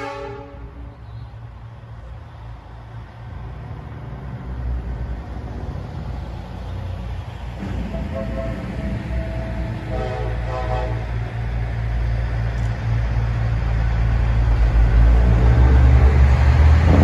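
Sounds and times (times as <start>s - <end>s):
air horn blast: 0.0s - 0.7s, 7.6s - 11.2s
truck diesel engine rumbling: 0.0s - 17.0s.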